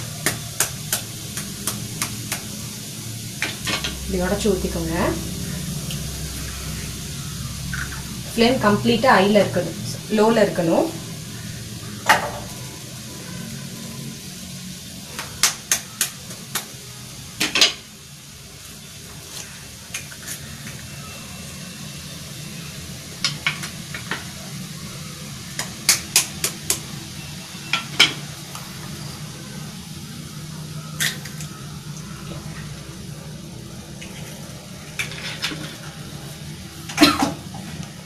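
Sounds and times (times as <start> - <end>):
low steady hum: 0.0 - 14.4
vegetables sizzling: 0.0 - 38.0
eggs cracking on pan rim: 31.0 - 31.5.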